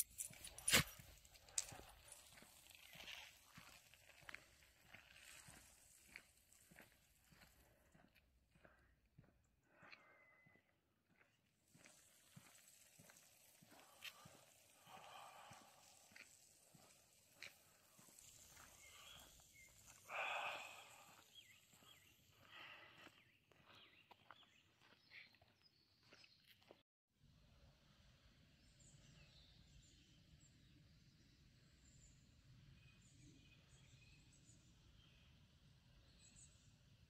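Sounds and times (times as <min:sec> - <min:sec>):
faint footsteps on asphalt: 0:00.0 - 0:26.8
bird calls with whistled notes: 0:18.2 - 0:19.9.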